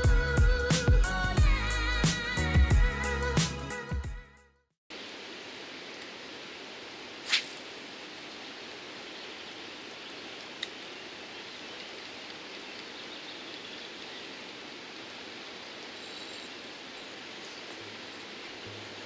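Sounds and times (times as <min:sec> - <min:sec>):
fishing rod cast swish: 0:07.2 - 0:07.8
river water rushing: 0:09.7 - 0:19.0.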